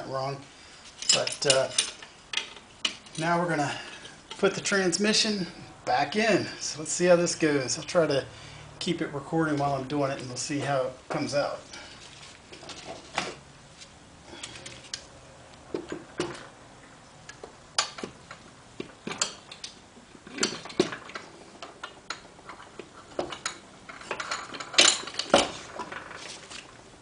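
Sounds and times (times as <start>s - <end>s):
metal clicks and knocks: 17.3s - 26.4s.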